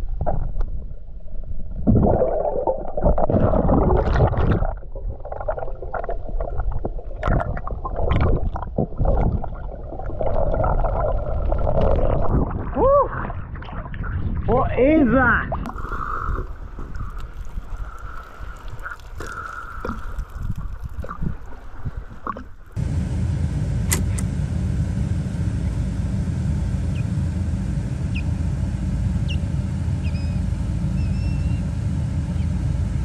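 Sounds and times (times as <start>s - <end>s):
wind rumble on microphone: 7.2s - 22.6s
water splashes and drips: 15.6s - 22.8s
bird chirps: 30.0s - 30.4s, 31.0s - 31.7s.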